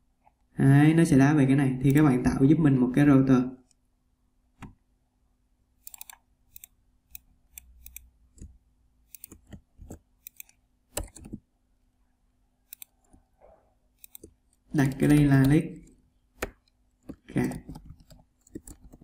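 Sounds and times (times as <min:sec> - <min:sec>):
mouse and keyboard clicks: 0:01.9 - 0:02.1, 0:05.8 - 0:11.4, 0:12.7 - 0:13.3, 0:14.0 - 0:19.0.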